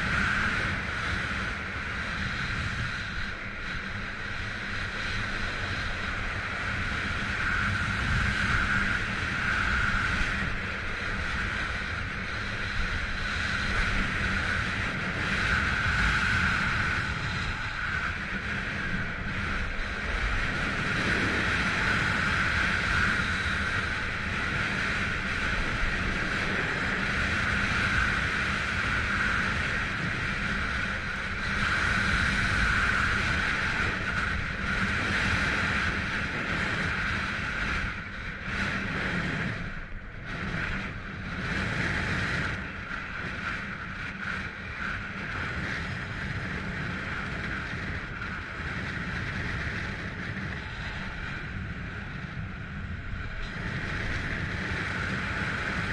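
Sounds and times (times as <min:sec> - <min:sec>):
wind buffeting microphone: 0:00.0 - 0:55.9.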